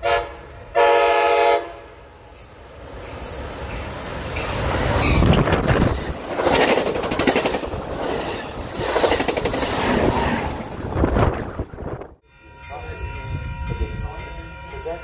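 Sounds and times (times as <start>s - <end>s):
train wheels clattering on rails: 2.6s - 11.6s.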